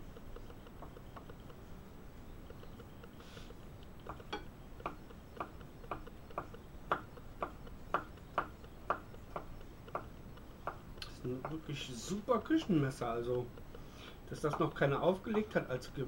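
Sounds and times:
knife chopping on wooden board: 4.1 - 10.8, 14.5 - 14.7.

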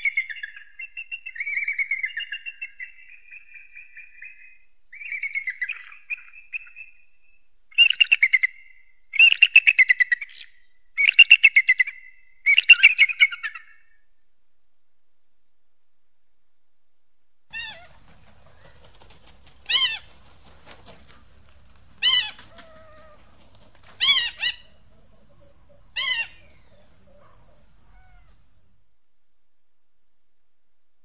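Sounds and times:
faint low rumble: 14.2 - 31.0
eagle calling: 17.5 - 28.7.

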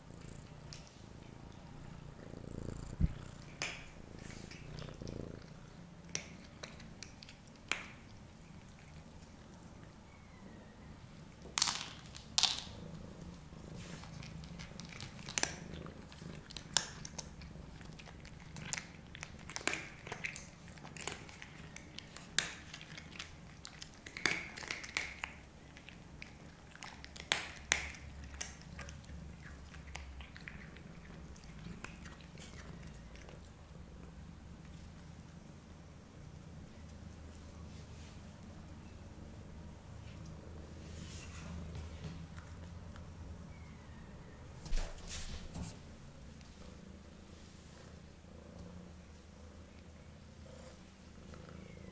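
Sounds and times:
cats crunching dry kibble: 3.0 - 9.9, 11.2 - 35.4.

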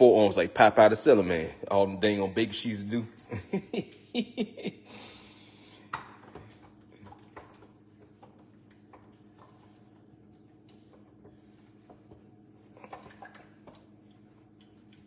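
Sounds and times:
whisk scraping metal pot: 6.9 - 15.0.

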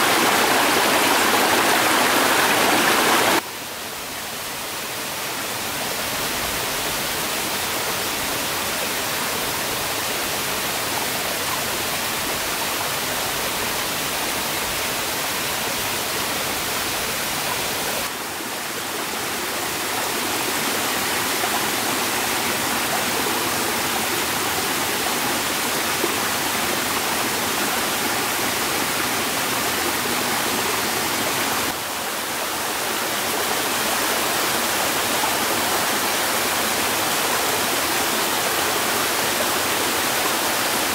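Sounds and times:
water rushing: 0.0 - 3.4, 5.7 - 40.9.

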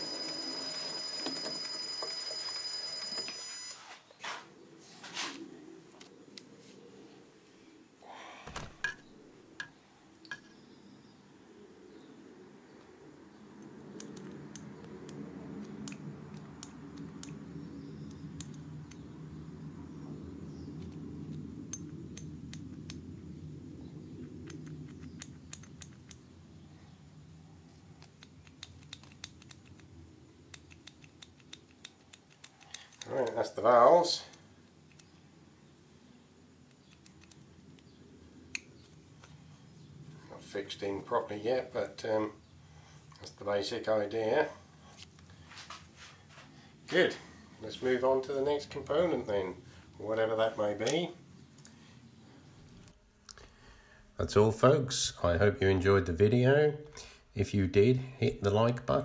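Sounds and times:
faint low hum: 0.0 - 59.0
metal parts clicking and tapping: 28.0 - 29.9, 30.5 - 33.1.

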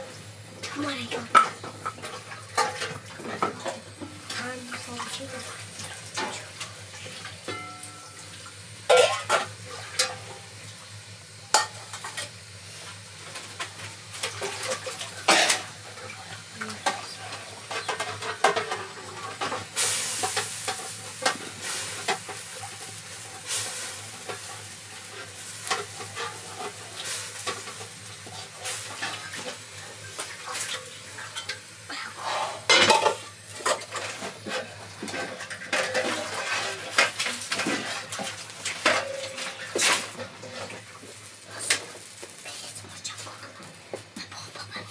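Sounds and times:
food sizzling: 0.0 - 44.9
metal pots clanking: 0.6 - 4.4, 7.2 - 8.3, 8.9 - 10.4, 13.5 - 22.4, 32.2 - 40.9
wooden spoon scraping metal pot: 32.2 - 40.8.

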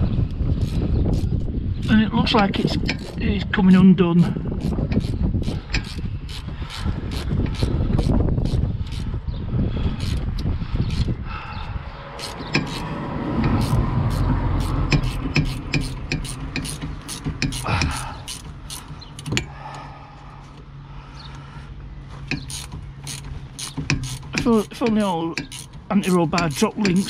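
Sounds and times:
ratchet spanner clicking: 0.6 - 2.0, 2.7 - 3.2, 4.6 - 9.1, 10.0 - 11.2, 12.2 - 19.5, 22.2 - 27.0.

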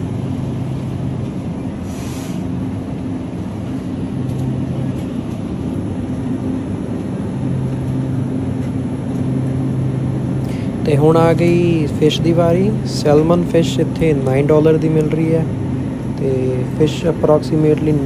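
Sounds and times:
rush of air: 0.0 - 11.0
low machine hum: 0.0 - 18.0
short hiss: 1.8 - 2.5.

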